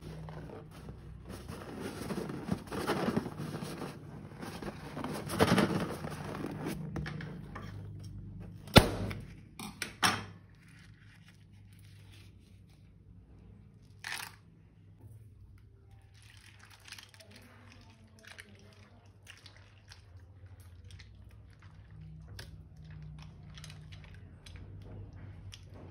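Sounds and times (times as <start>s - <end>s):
plastic containers rustling and scraping: 0.0s - 8.6s.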